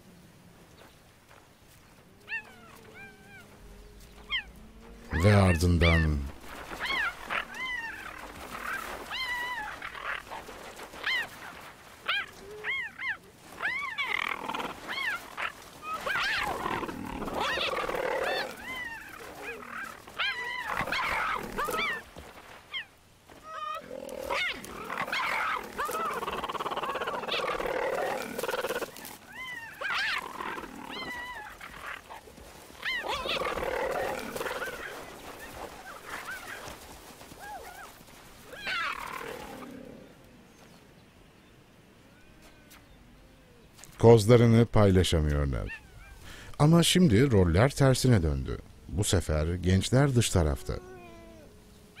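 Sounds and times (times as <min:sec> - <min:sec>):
cheetahs calling: 0:02.1 - 0:40.7, 0:44.4 - 0:52.0
cheetahs snarling and growling: 0:12.0 - 0:22.0, 0:23.4 - 0:40.4.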